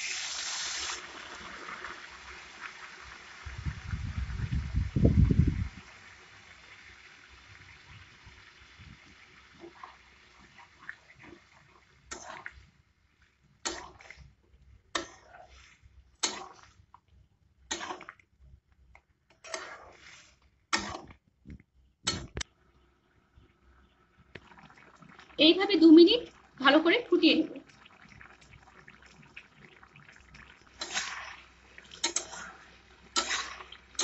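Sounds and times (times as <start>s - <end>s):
curry sizzling: 0.0s - 17.0s, 17.6s - 18.2s, 24.0s - 34.0s
spatula scraping pan: 12.1s - 12.7s, 15.0s - 16.8s, 17.7s - 18.1s, 19.4s - 21.1s, 30.8s - 34.0s.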